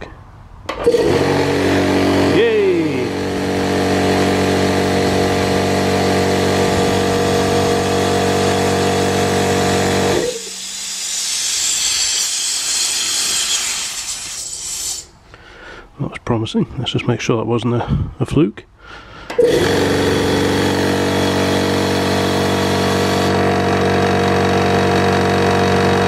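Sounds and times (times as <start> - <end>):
air compressor motor humming: 0.7 - 15.0, 19.3 - 26.0
compressed air hissing: 9.8 - 15.2.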